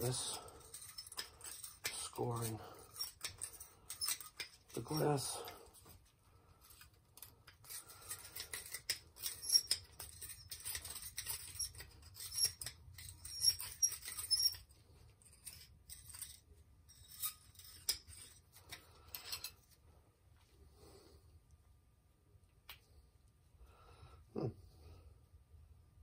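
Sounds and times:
cutter wheel scraping glass: 7.5 - 18.4.

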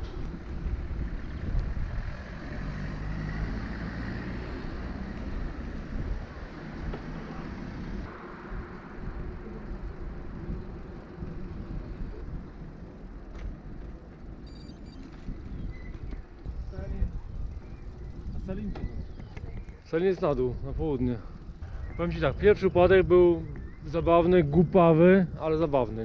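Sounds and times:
wind rumble on microphone: 0.0 - 3.2, 4.1 - 26.0
road and traffic noise: 0.0 - 26.0.

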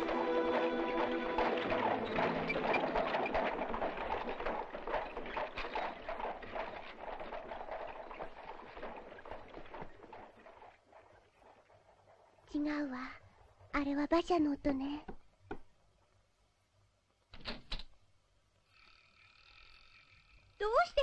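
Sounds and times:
hooves clip-clopping: 0.0 - 12.5.

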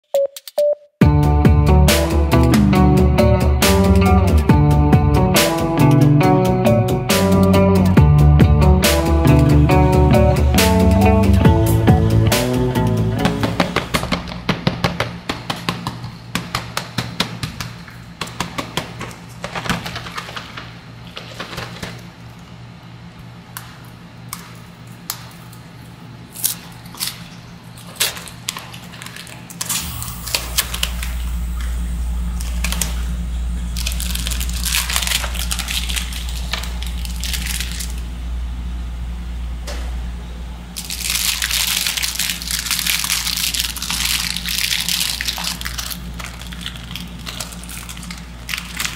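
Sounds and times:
steady low hum: 1.0 - 48.9.

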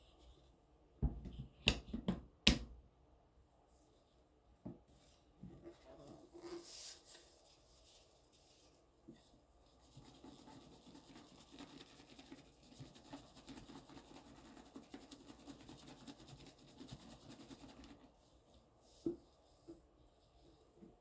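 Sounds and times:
powder patter on sponge: 9.8 - 18.2.

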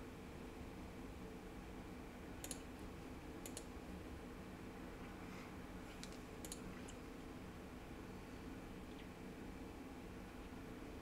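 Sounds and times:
faint low hum: 0.0 - 11.0
computer mouse clicking: 2.4 - 2.7, 3.4 - 3.8, 5.9 - 7.0.

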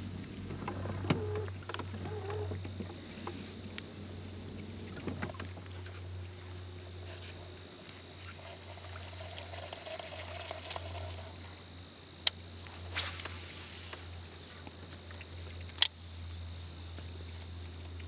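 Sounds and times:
steady low hum: 0.0 - 9.7, 10.3 - 18.0
fishing line rushing out: 12.6 - 14.6
fishing reel whirring: 12.9 - 14.6.

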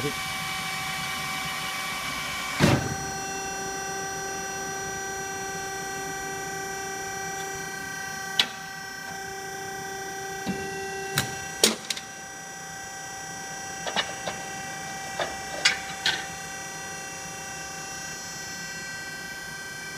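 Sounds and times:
hydraulic machine humming: 0.0 - 19.9
metal clicks and clanks: 15.2 - 16.2.

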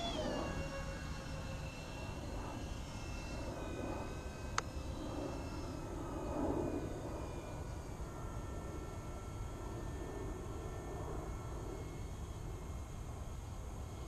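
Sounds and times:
distant model airplane engine whine: 0.0 - 14.0
wind rumble on microphone: 0.0 - 14.0.

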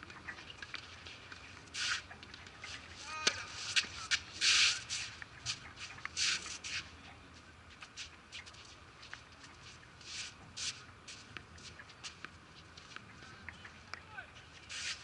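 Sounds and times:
shoes scuffing on court: 0.6 - 13.1
racket hitting ball: 3.2 - 3.9.

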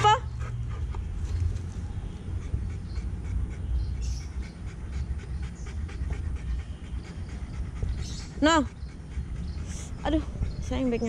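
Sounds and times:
dog panting: 0.0 - 11.0.

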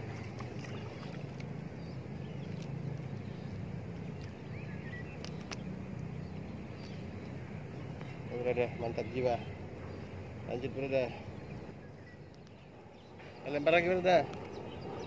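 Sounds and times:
steady low rumble: 0.0 - 15.0
faint sharp clicks: 5.1 - 6.1, 12.2 - 12.6, 14.2 - 14.6.

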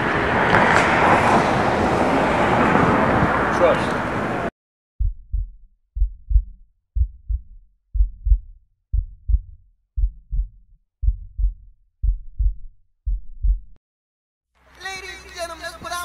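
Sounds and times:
heartbeat thumps: 5.0 - 13.8.

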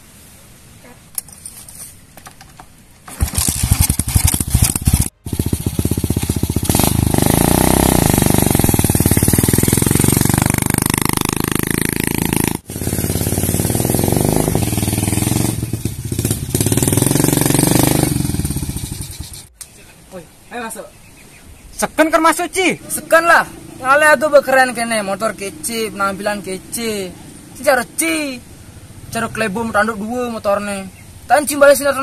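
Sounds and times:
motorcycle engine revving: 3.1 - 19.5, 22.4 - 30.1.

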